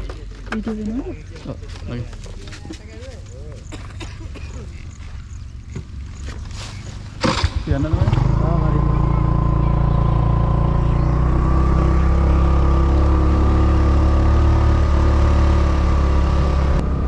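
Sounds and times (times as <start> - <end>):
motorcycle engine running: 4.7 - 17.0.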